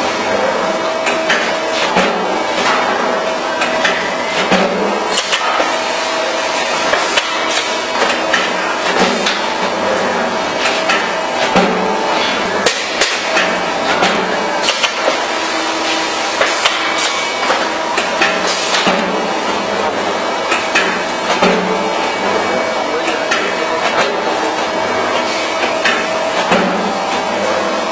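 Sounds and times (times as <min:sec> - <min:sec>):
steady machine hum: 0:00.0 - 0:27.9
cutting press knocks: 0:25.8 - 0:26.9.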